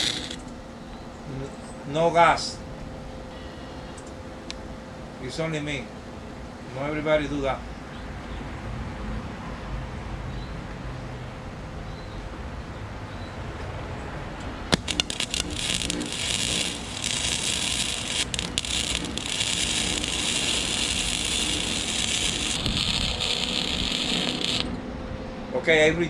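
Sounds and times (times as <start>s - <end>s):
welding arc crackling sizzle: 0.0s - 0.5s, 14.6s - 24.8s
welding arc pops: 0.0s - 0.5s, 14.7s - 24.8s.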